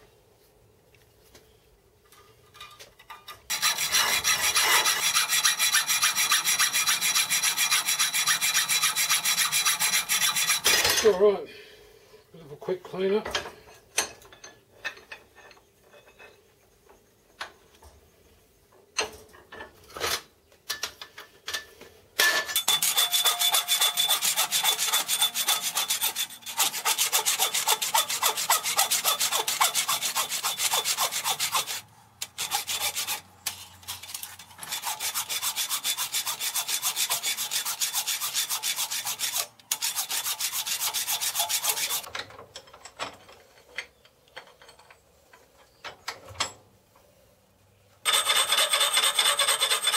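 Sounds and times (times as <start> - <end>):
hand file rasping on metal: 3.5 - 10.7, 22.7 - 42.1, 48.1 - 49.9.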